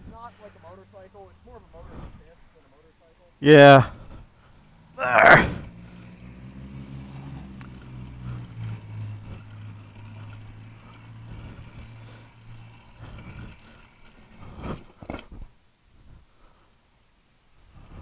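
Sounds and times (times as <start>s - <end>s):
small motorbike engine running: 3.4s - 15.5s.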